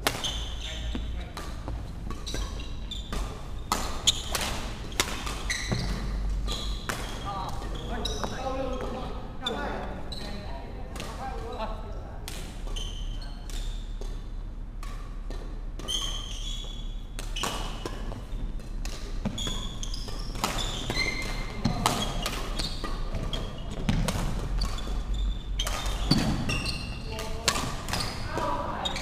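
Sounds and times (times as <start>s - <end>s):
racket striking shuttlecock: 0.0s - 7.3s, 16.9s - 25.0s, 25.6s - 28.5s
shoe squeaks on wooden floor: 0.2s - 1.3s, 2.1s - 10.5s, 12.6s - 13.4s, 15.8s - 18.5s, 19.2s - 27.2s, 27.8s - 29.0s.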